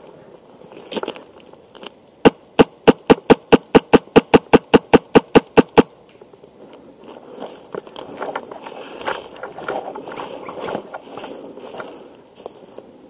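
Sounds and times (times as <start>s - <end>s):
airsoft rifle shots: 2.2s - 5.9s.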